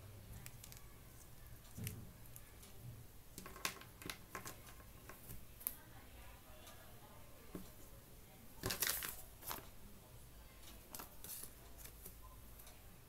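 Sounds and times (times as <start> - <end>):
earphone cable handling noise: 3.4 - 5.8, 8.6 - 9.7.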